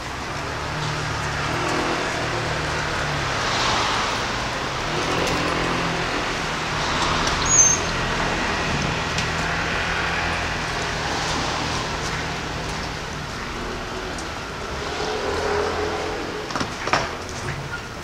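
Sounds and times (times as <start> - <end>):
city street traffic: 0.0 - 18.0
short high squeak: 7.4 - 7.9.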